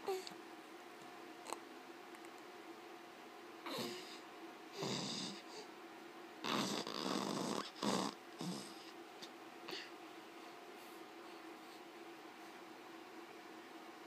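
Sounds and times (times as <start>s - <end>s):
faint steady hum: 0.0s - 14.0s
baby snore-like breathing: 3.6s - 5.7s, 6.4s - 9.0s.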